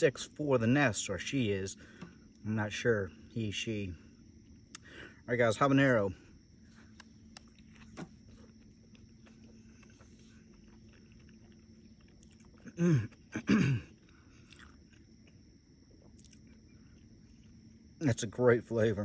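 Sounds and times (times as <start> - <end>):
man chewing food: 6.6 - 18.0
man humming mmm: 12.6 - 13.8.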